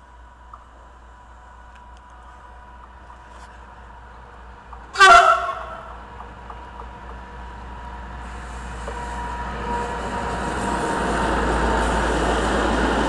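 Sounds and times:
diesel locomotive engine: 0:00.0 - 0:13.0
wheel and rail noise: 0:00.0 - 0:13.0
train horn: 0:04.9 - 0:06.0.

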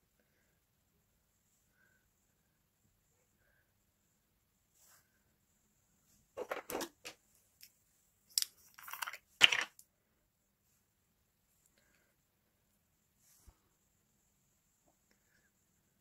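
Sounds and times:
makeup items clicking and clattering: 0:06.4 - 0:07.2, 0:08.3 - 0:09.8.

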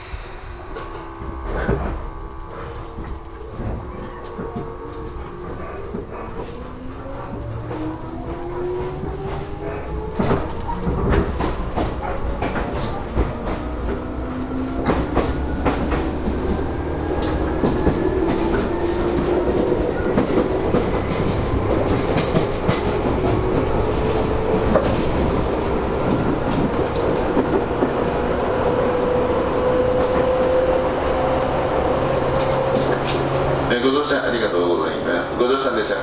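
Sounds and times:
low rumble: 0:00.0 - 0:08.1
train motors humming: 0:00.0 - 0:36.0
wheels clicking over rail joints: 0:00.8 - 0:30.5.

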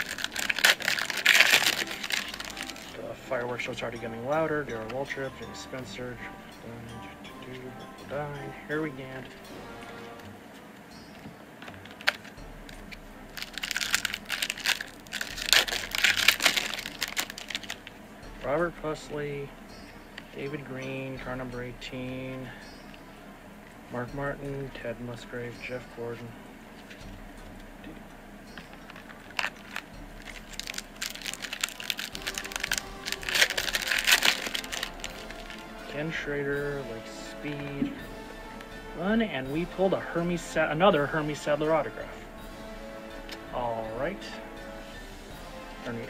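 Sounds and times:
foil wrapper crinkling and tearing: 0:00.0 - 0:03.0, 0:13.3 - 0:17.9, 0:28.9 - 0:36.0.

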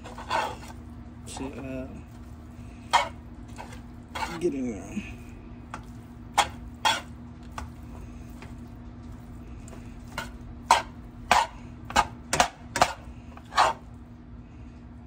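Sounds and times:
spatula scraping a skillet: 0:00.0 - 0:04.6, 0:05.7 - 0:08.6, 0:09.7 - 0:14.0.

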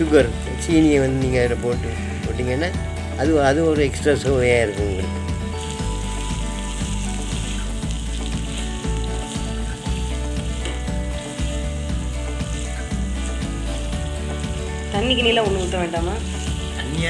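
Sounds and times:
background music with low notes: 0:00.0 - 0:17.0
food sizzling in oil: 0:00.0 - 0:17.0
wooden spatula stirring: 0:05.5 - 0:17.0.

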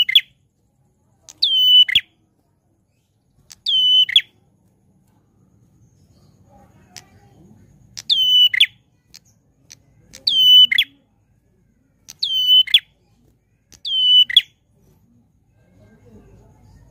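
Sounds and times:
bird calling with held whistle: 0:01.4 - 0:02.1, 0:03.5 - 0:04.4, 0:08.0 - 0:08.8, 0:10.2 - 0:11.0, 0:12.1 - 0:12.9, 0:13.8 - 0:14.6.

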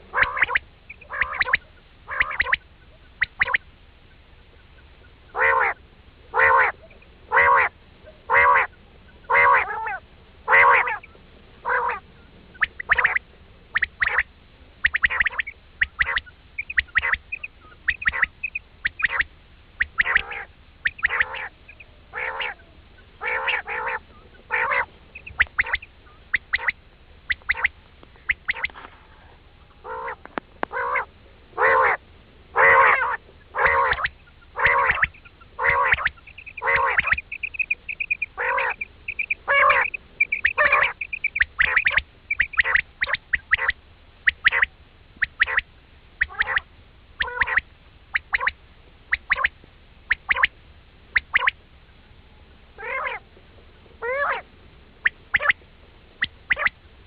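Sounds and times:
quail calling: 0:00.0 - 0:51.6, 0:52.8 - 0:53.3, 0:54.0 - 0:56.8
high fast trill: 0:33.6 - 0:43.7.

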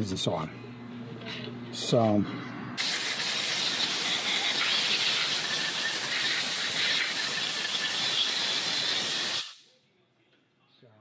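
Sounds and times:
pressurized spray hissing: 0:02.8 - 0:09.6.

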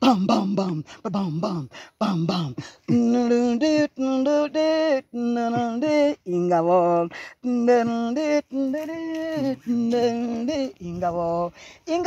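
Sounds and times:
woman singing unaccompanied: 0:00.0 - 0:12.0
woman breathing: 0:01.7 - 0:02.0, 0:11.5 - 0:11.8.

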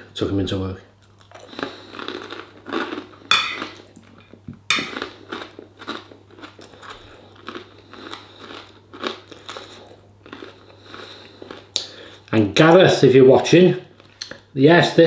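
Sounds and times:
person chewing crunchy food: 0:01.0 - 0:12.3.

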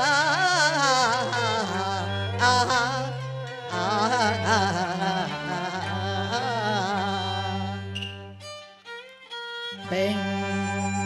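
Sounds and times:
opera singing with vibrato: 0:00.0 - 0:08.0.

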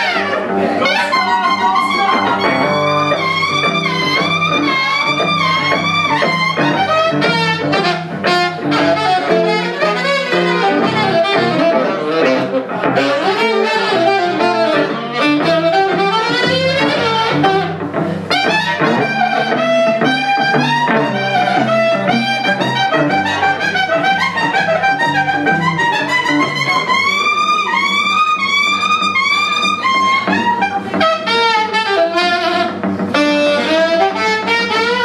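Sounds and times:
electric guitar chords: 0:00.0 - 0:35.0
saxophone melody: 0:00.0 - 0:35.0.

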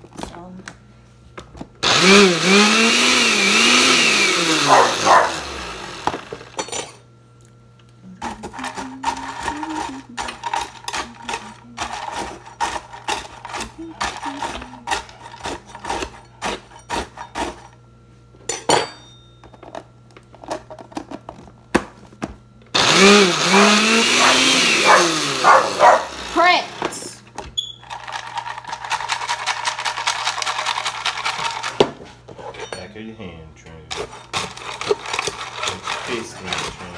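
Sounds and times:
blender running: 0:01.8 - 0:06.6, 0:08.2 - 0:16.1, 0:22.8 - 0:27.2, 0:27.9 - 0:31.8, 0:34.3 - 0:36.9
dog whining: 0:04.6 - 0:05.6, 0:24.1 - 0:26.6
chips crunching in blender jar: 0:34.3 - 0:36.9.

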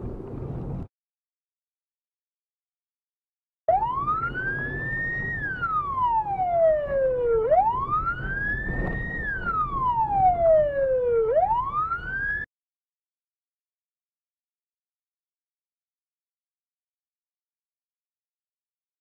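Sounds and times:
low road rumble: 0:00.0 - 0:00.9, 0:03.7 - 0:12.5
police siren wailing: 0:03.7 - 0:12.5.

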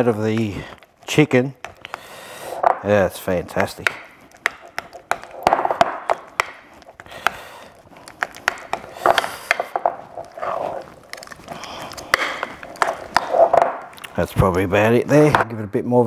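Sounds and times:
soft scraping: 0:06.2 - 0:14.4.

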